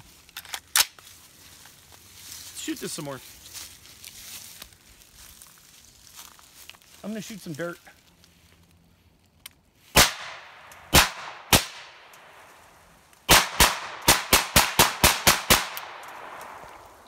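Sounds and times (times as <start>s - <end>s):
suppressed rifle shots: 10.0s - 12.5s, 13.3s - 17.0s.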